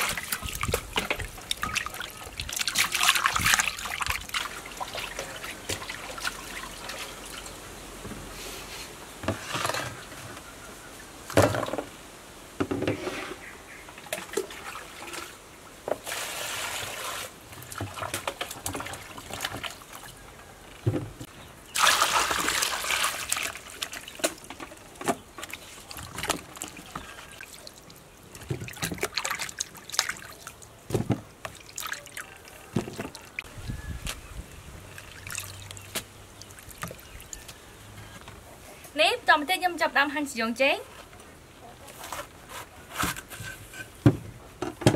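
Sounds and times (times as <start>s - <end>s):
water pouring: 0.0s - 7.6s, 21.7s - 30.7s, 35.0s - 37.5s
water splashing in a bowl: 0.0s - 7.6s, 21.7s - 33.5s, 34.9s - 37.6s.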